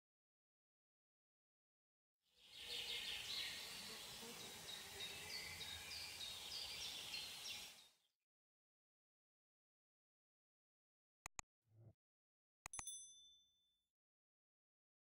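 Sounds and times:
small birds chirping: 0:02.4 - 0:08.0.

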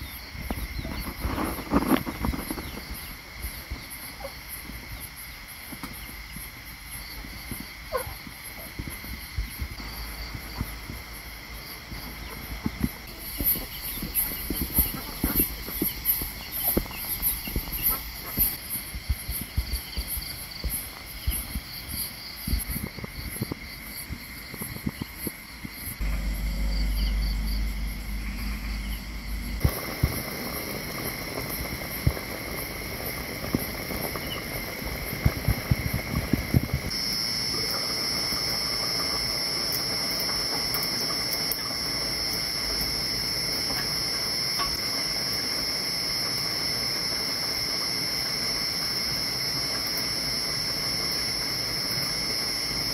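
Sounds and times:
insects chirping: 0:00.0 - 0:52.9
low rumble: 0:25.9 - 0:37.0.

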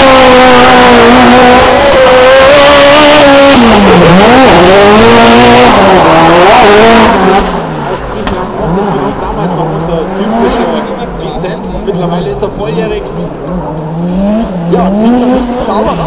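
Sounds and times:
car engine at high revs: 0:00.0 - 0:16.0.

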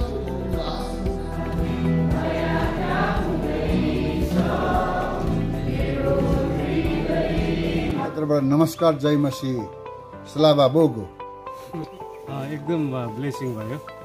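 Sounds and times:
choir singing a hymn: 0:00.0 - 0:08.4
guitar: 0:00.0 - 0:14.0.

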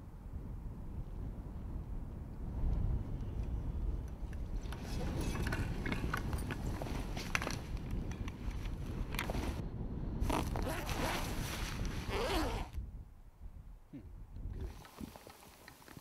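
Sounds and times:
wind rumble on microphone: 0:00.0 - 0:16.0
leather gun slip rustling: 0:04.8 - 0:09.6, 0:10.3 - 0:12.8.

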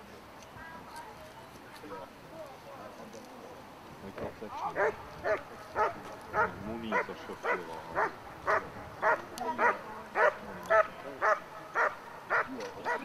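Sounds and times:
dog barking: 0:04.8 - 0:13.0.

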